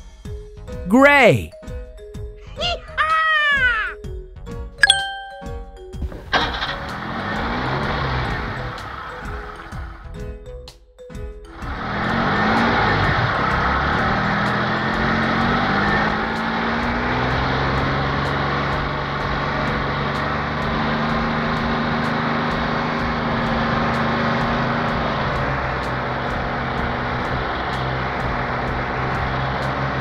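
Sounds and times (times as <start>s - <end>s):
car engine hum: 6.1s - 10.1s, 11.6s - 30.0s.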